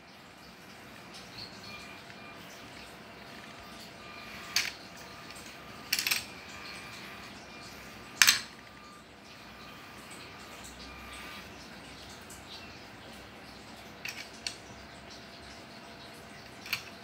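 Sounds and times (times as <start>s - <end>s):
plastic parts clacking: 4.4s - 7.0s, 8.2s - 8.9s, 14.0s - 14.6s, 16.4s - 17.0s.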